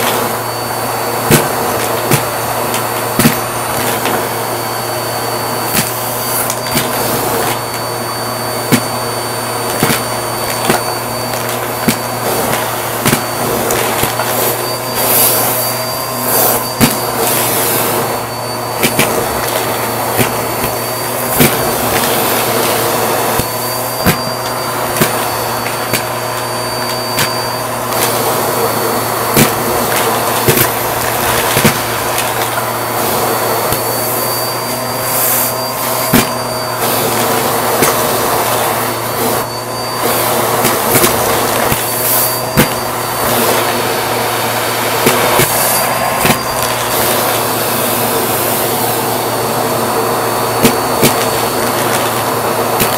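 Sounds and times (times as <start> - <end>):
vacuum cleaner running: 0.0 - 52.9
coins clacking up vacuum hose: 8.5 - 48.8.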